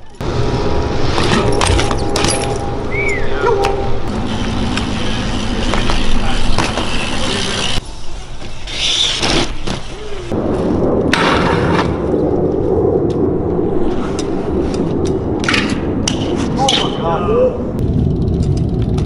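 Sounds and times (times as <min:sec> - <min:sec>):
bikes rolling on pavement: 0:00.0 - 0:19.0
sharp knocks from bikes: 0:05.7 - 0:07.0.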